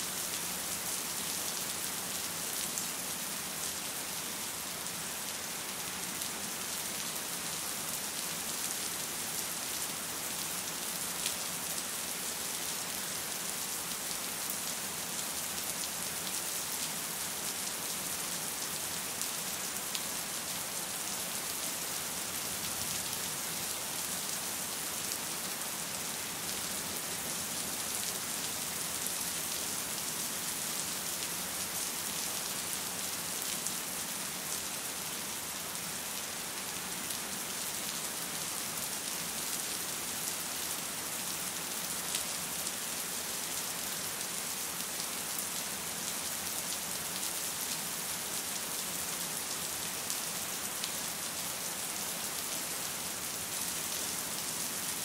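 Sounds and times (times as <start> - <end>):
steady rain hiss: 0.0 - 55.0.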